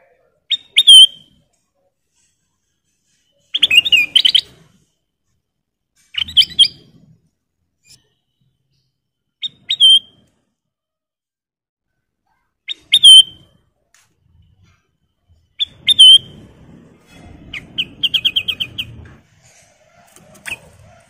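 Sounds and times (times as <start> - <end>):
bird singing whistled notes: 0.5 - 1.4, 3.2 - 4.5, 6.2 - 6.9, 7.8 - 10.2, 12.7 - 13.5, 15.6 - 16.4, 17.5 - 19.0.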